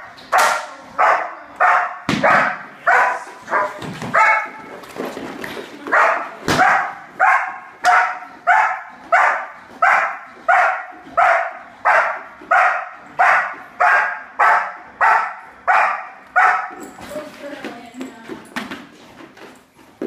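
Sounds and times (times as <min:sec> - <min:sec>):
dog barking: 0:00.3 - 0:04.6, 0:05.9 - 0:16.8.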